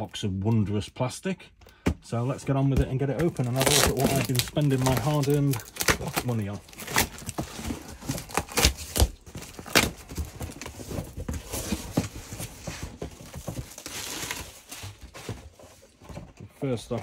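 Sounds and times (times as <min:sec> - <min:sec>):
plastic film crinkling: 0:03.0 - 0:15.3.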